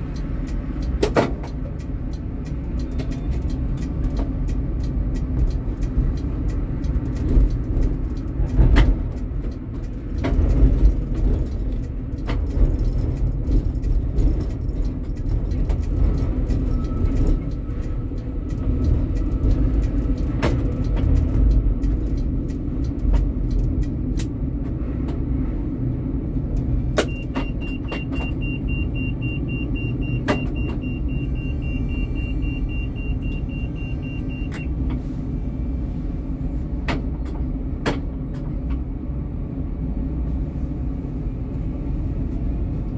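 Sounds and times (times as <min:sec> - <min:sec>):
sharp clicks and knocks: 0:00.0 - 0:25.3, 0:36.8 - 0:38.9
tram rumble: 0:00.0 - 0:42.9
high rapidly pulsing beep: 0:27.1 - 0:34.7.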